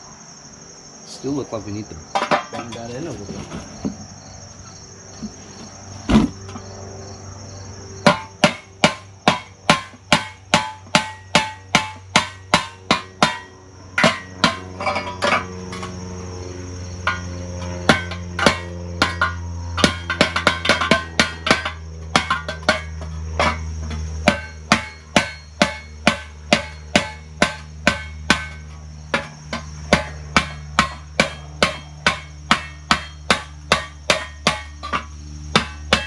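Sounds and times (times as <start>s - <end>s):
hammer striking metal: 8.0s - 15.9s, 17.1s - 23.6s, 24.2s - 36.0s.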